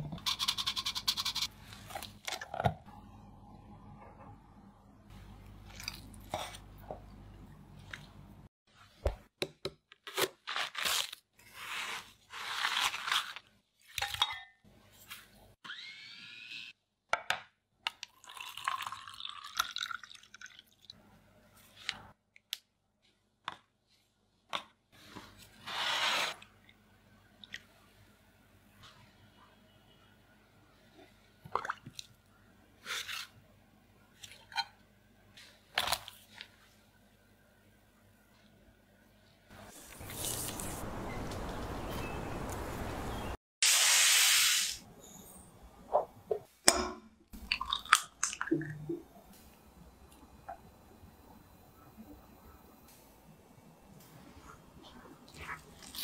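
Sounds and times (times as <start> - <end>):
wet squelches and plops: 31.4 - 32.2
scoop scraping watermelon flesh: 39.8 - 40.8.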